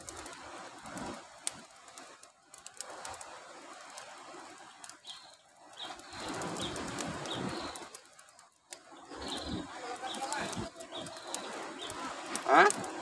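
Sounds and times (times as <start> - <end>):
bird chirping: 5.0 - 7.8.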